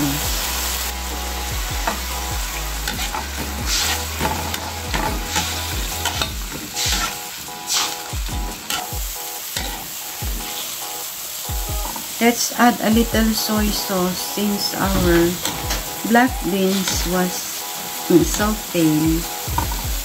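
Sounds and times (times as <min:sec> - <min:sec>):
food sizzling in oil: 0:00.0 - 0:20.0
spatula scraping a wok: 0:02.9 - 0:08.1.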